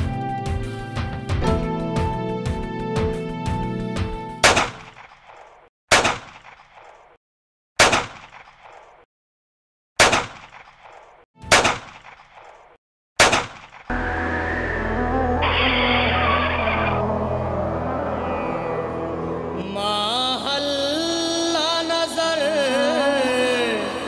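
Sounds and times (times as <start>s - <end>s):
background music: 0.0s - 4.4s, 13.9s - 24.0s
rifle shots: 4.4s - 5.1s, 5.9s - 6.6s, 7.8s - 8.7s, 10.0s - 10.7s, 11.5s - 12.2s, 13.2s - 13.8s.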